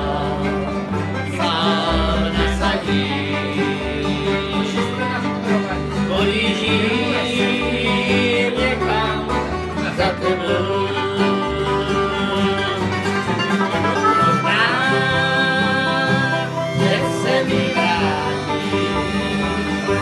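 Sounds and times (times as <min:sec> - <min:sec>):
acoustic guitar: 0:00.0 - 0:20.0
banjo: 0:00.0 - 0:20.0
fiddle: 0:00.0 - 0:20.0
men singing: 0:00.0 - 0:20.0
upright double bass: 0:00.0 - 0:20.0.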